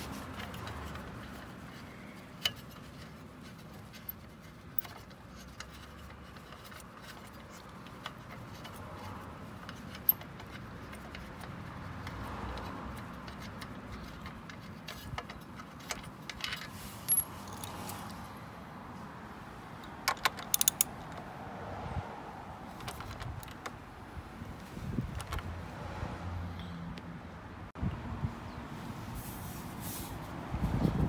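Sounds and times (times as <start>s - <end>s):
light metallic clicks: 19.8s - 21.2s.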